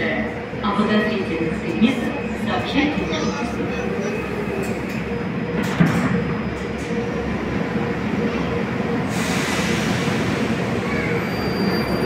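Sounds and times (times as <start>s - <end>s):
train equipment humming: 0.0s - 12.0s
hiss of air: 9.1s - 10.4s.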